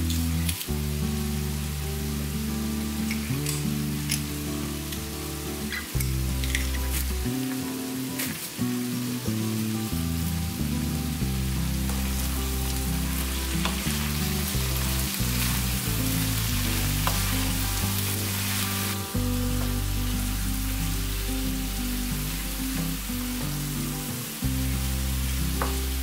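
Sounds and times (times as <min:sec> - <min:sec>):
background music low notes: 0:00.0 - 0:26.0
food sizzling in a frying pan: 0:00.0 - 0:26.0
wooden spoon stirring: 0:13.2 - 0:19.0.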